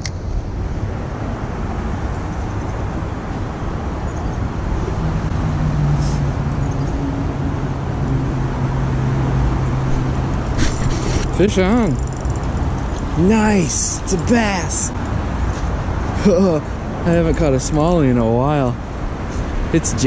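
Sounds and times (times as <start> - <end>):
road traffic rumble: 0.0 - 20.0.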